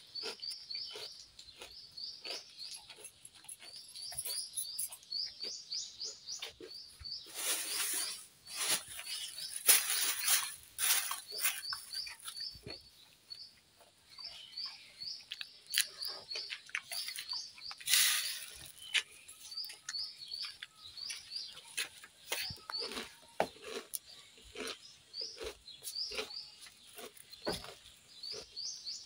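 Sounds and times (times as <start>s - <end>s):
small bird chirping: 0.0s - 29.0s
plastic bag rustling: 7.2s - 12.0s, 17.9s - 18.9s.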